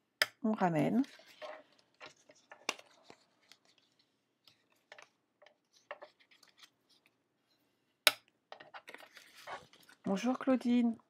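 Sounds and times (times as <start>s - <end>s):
paper rustling and scraping: 0.9s - 7.2s, 8.7s - 10.4s.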